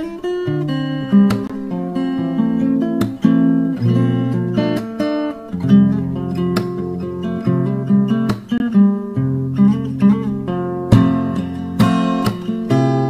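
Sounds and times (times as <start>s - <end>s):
acoustic guitar music: 0.0s - 13.0s.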